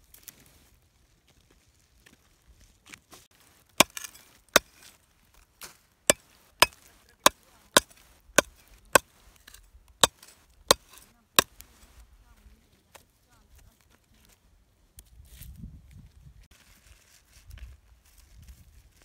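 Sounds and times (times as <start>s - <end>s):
digging tool striking hard soil: 3.8s - 4.9s, 5.6s - 11.8s.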